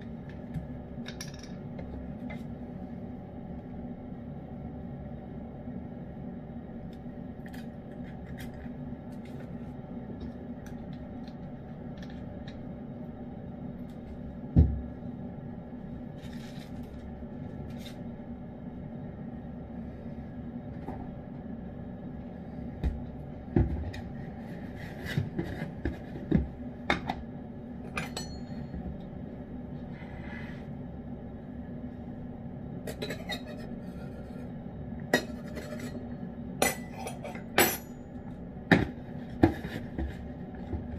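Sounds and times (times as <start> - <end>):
steady hum: 0.0 - 40.9.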